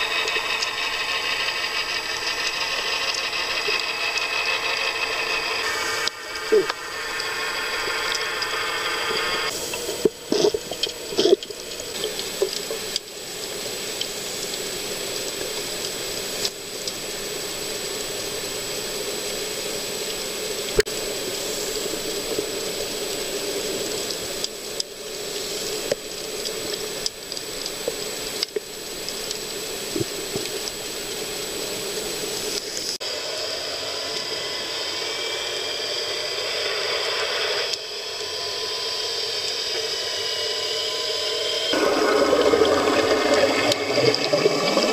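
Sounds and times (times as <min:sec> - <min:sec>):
underwater clicks and crackles: 0:00.0 - 0:05.4, 0:08.0 - 0:17.1, 0:23.5 - 0:33.0
underwater watery hiss: 0:05.6 - 0:33.3, 0:38.5 - 0:44.9.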